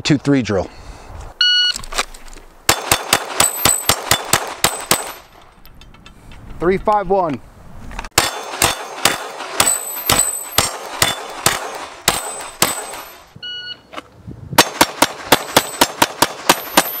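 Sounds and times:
pistol gunshots: 2.7 - 5.3, 8.1 - 13.2, 14.6 - 17.0
bullets ringing off steel: 2.7 - 6.0, 8.2 - 13.3, 14.6 - 17.0.

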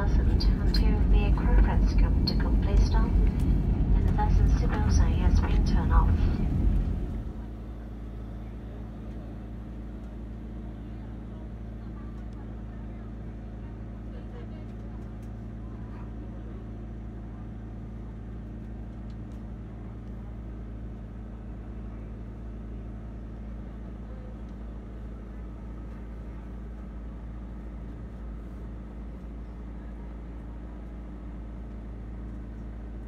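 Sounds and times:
airplane cabin hum: 0.0 - 33.0.

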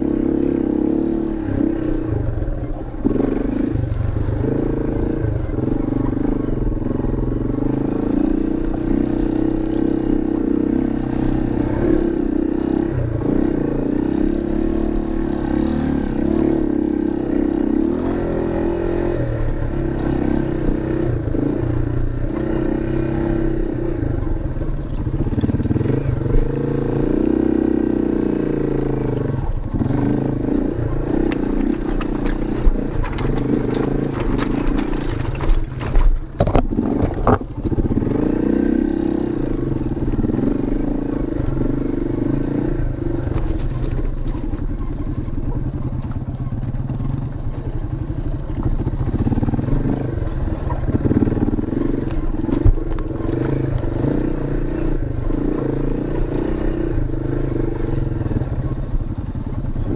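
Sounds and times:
motorcycle engine: 0.0 - 59.9
knocks and clatter over rocks: 1.5 - 12.2, 28.9 - 38.4, 41.5 - 59.9.

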